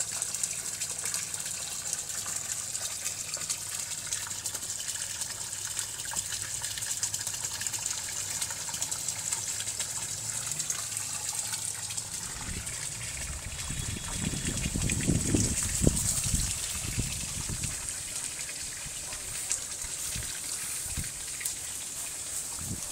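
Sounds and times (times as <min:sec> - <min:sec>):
water feature splashing: 0:00.0 - 0:22.9.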